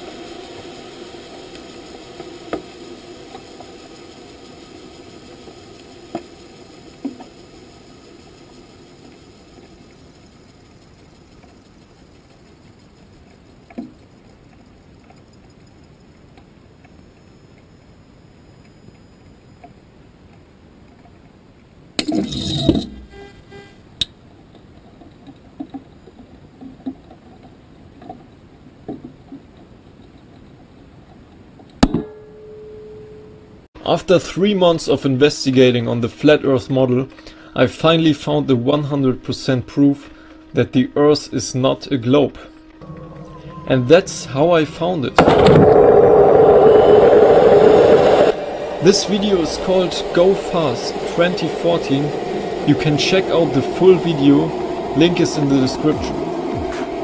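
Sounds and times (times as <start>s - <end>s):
faint hiss: 0.0s - 19.9s, 33.8s - 57.0s.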